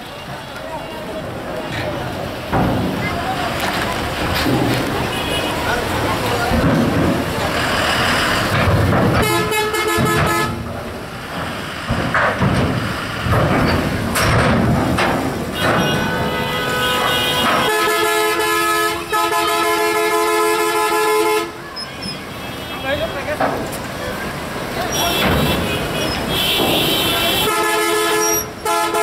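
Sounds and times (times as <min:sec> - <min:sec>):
heavy truck engine rumble: 0:00.0 - 0:29.0
vehicle horn honking: 0:09.2 - 0:10.6, 0:15.6 - 0:23.3, 0:24.9 - 0:29.0.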